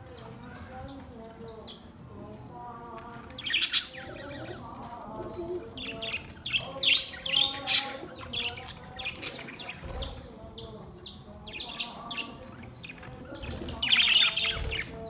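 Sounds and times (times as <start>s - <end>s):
budgerigars chattering: 5.7s - 15.0s.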